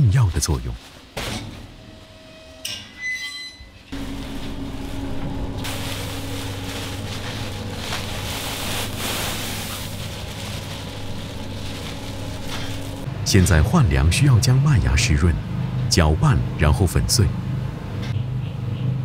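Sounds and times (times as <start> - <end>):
plastic sack rustling: 0.5 - 1.8, 4.0 - 13.1
low machine hum: 3.8 - 19.0.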